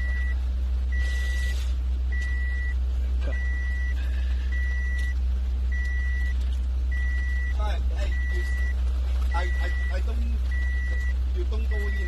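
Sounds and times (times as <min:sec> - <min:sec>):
electronic alarm beeping: 0:00.0 - 0:01.5, 0:02.1 - 0:12.0
steady low rumble: 0:00.0 - 0:12.0.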